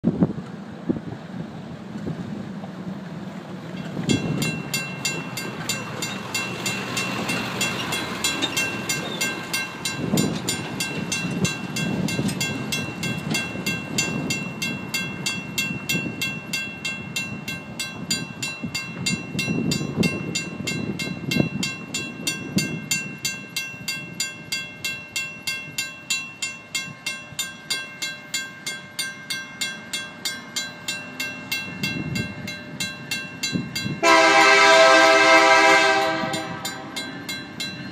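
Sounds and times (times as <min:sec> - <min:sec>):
mechanical crossing bell ringing: 0:04.1 - 0:34.5, 0:36.0 - 0:37.9
wind on microphone: 0:09.0 - 0:24.2.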